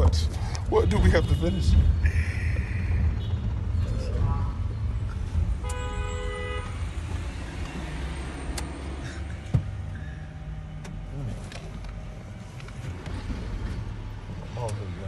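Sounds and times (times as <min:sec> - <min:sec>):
traffic rumble from inside car: 0:00.0 - 0:15.0
car horn honk: 0:04.2 - 0:04.6, 0:05.6 - 0:06.9.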